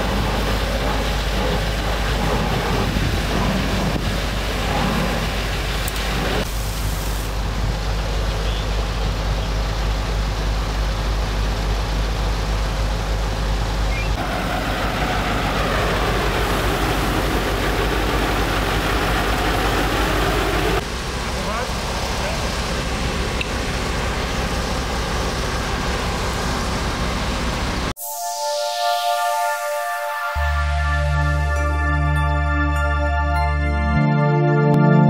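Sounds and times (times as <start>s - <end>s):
diesel engine humming: 0.0s - 27.9s.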